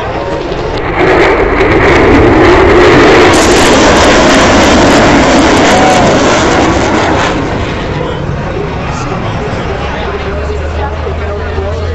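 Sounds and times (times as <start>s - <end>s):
jet passing low overhead: 0.0s - 11.9s.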